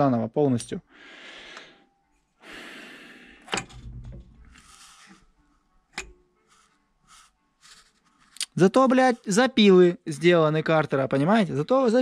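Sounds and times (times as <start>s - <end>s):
faint breathing: 0.9s - 3.6s, 4.5s - 5.3s.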